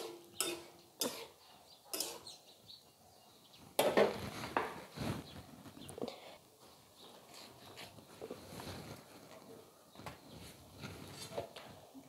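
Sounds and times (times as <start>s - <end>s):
spatula clattering on metal stove: 0.0s - 2.4s
steel spatula scraping in a pan: 0.0s - 2.4s.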